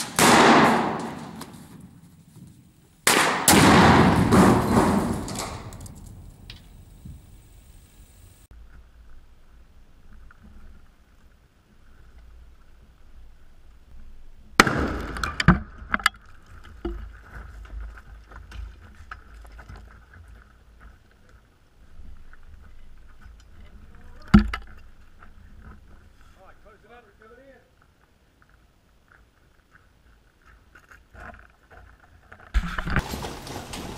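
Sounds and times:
explosive blast: 0:00.0 - 0:01.4, 0:03.1 - 0:07.0
debris crackling and clattering: 0:03.9 - 0:07.9, 0:30.7 - 0:33.9.

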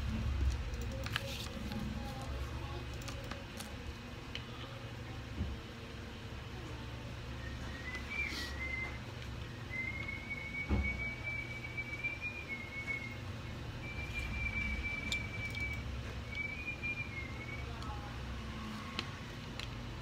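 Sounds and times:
person whistling high notes: 0:07.4 - 0:09.0.

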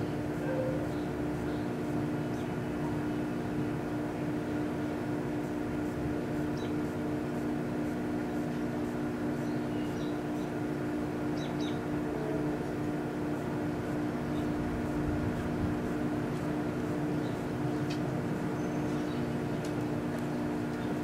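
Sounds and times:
microwave oven humming: 0:00.0 - 0:21.0.

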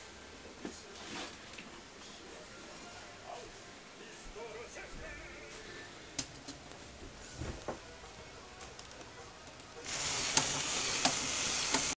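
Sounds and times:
toy robot motor whirring: 0:09.8 - 0:12.0.

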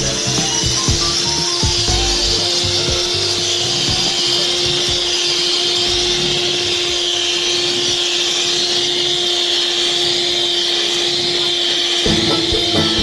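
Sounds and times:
music: 0:00.0 - 0:08.0, 0:11.1 - 0:13.0
electric hand mixer whine: 0:00.0 - 0:13.0.

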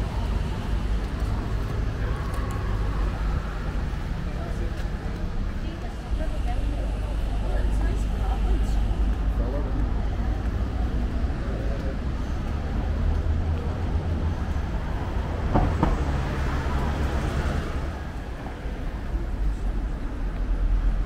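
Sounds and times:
traffic rumble: 0:00.0 - 0:21.0
vehicle passing: 0:07.9 - 0:19.3
sharp knock: 0:15.5 - 0:16.1.

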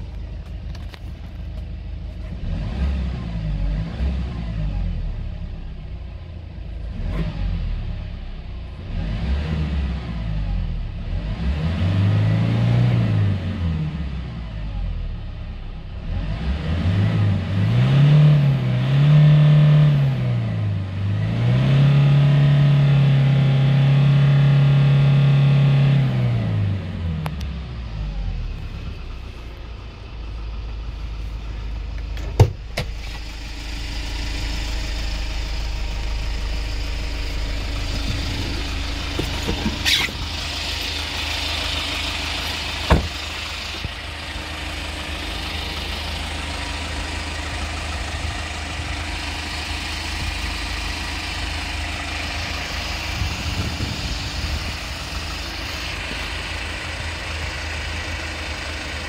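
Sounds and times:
truck engine idling: 0:00.0 - 0:02.4, 0:27.5 - 0:59.0
sharp knocks: 0:42.9 - 0:43.2.

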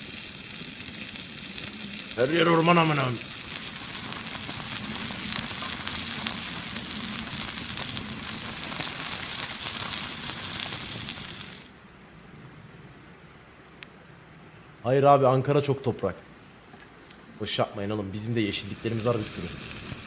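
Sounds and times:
burger patty sizzling: 0:00.0 - 0:11.8, 0:18.2 - 0:20.0.

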